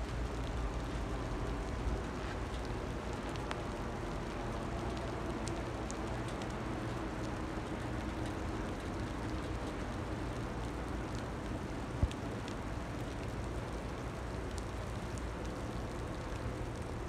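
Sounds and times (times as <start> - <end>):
faint ticks: 10.6 - 16.9.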